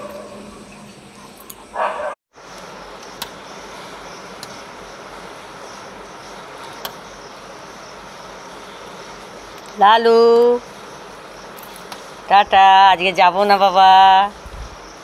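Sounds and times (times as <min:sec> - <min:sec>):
dog barking: 0:00.0 - 0:00.6, 0:01.2 - 0:02.2.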